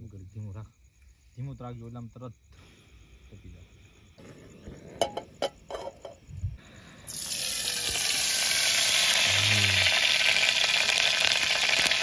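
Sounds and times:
gas stove hissing: 2.6s - 12.0s.

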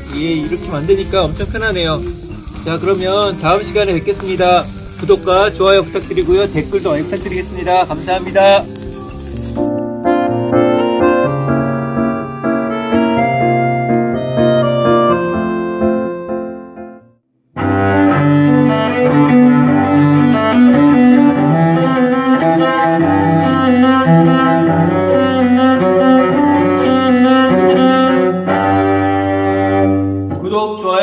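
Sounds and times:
bowed cello melody: 0.0s - 16.5s, 17.6s - 30.4s
other music: 0.0s - 16.8s.

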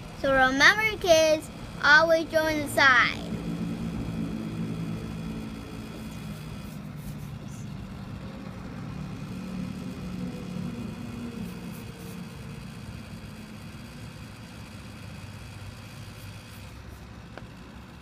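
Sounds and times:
low appliance hum: 0.0s - 18.0s
crayon scratching on paper: 6.0s - 7.7s.

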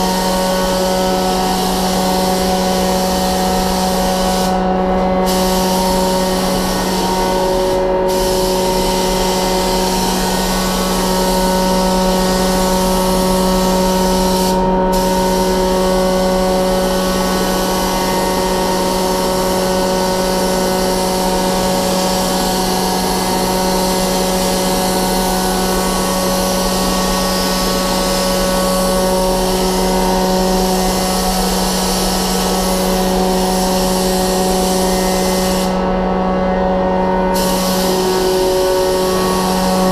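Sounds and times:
paint spray gun hissing: 0.0s - 35.8s, 37.4s - 39.9s
ventilation hum: 0.0s - 39.9s.

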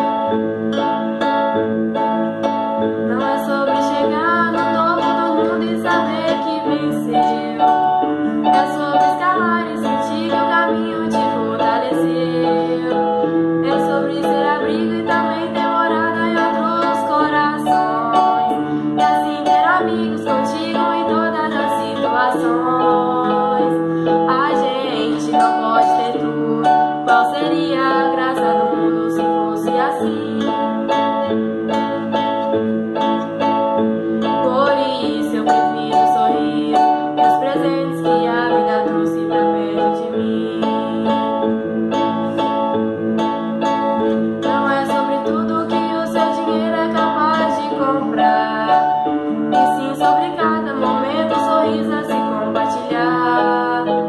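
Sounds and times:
acoustic guitar: 0.0s - 54.0s
electronic keyboard: 0.0s - 54.0s
girl singing: 2.9s - 42.7s, 43.6s - 54.0s.

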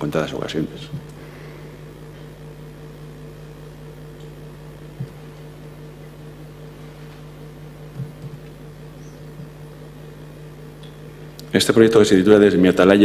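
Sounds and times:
electrical hum: 0.0s - 13.0s
soft low bump: 7.8s - 8.4s.

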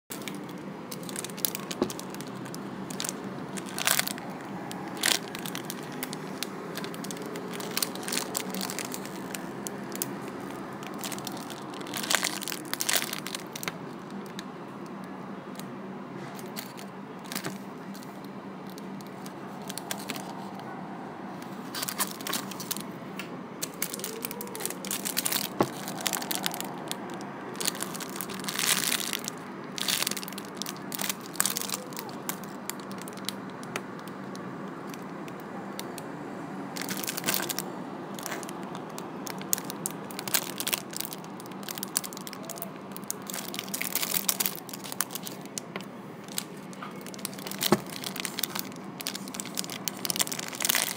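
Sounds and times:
plastic bags crinkling: 0.1s - 14.4s, 16.4s - 20.5s, 21.7s - 22.9s, 23.6s - 35.2s, 36.8s - 37.6s, 38.2s - 50.9s.

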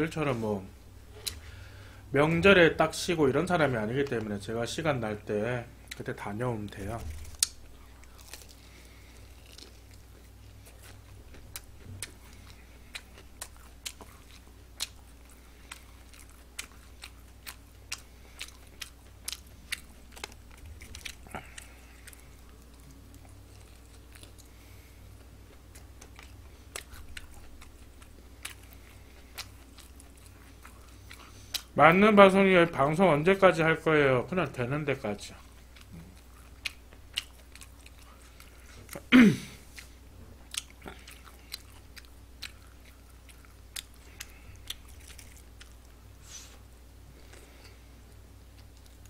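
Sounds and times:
faint low hum: 0.0s - 49.0s
crunchy chewing: 6.6s - 31.8s, 35.3s - 39.1s, 39.7s - 49.0s.

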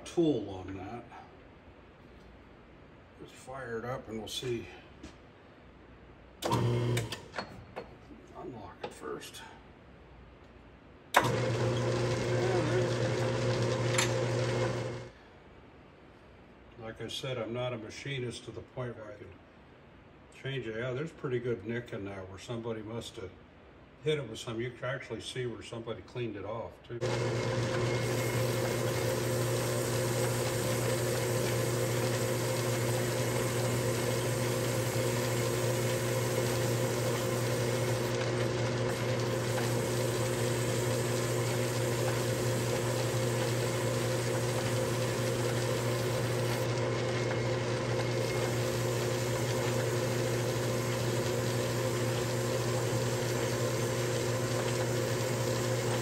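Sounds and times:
lathe motor humming: 6.5s - 7.1s, 11.2s - 15.1s, 27.0s - 56.0s.

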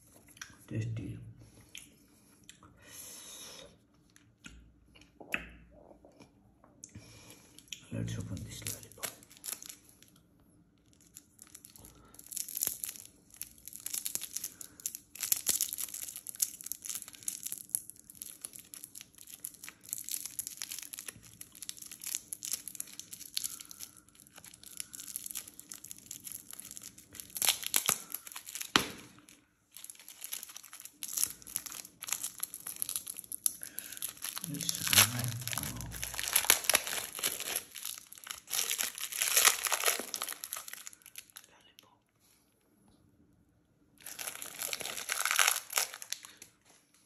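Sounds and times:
wrapper crinkling and tearing: 8.5s - 10.2s, 10.8s - 41.5s, 44.0s - 46.5s.

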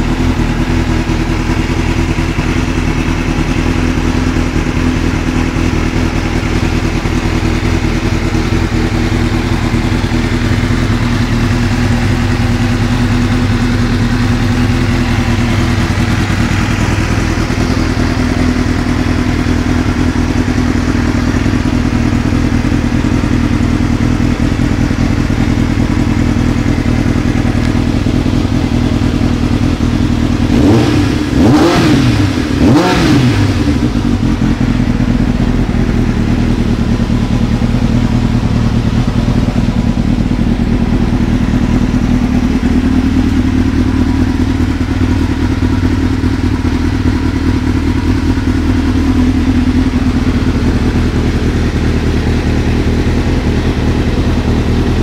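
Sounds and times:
motorcycle engine idling: 0.0s - 55.0s
engine revving: 28.4s - 35.4s.

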